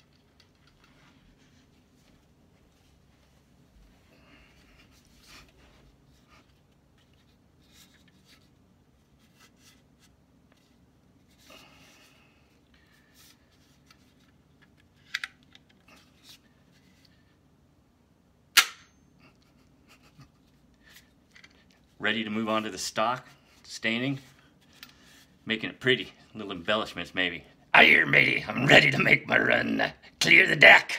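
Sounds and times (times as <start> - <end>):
sharp metallic snap: 18.5 - 19.0.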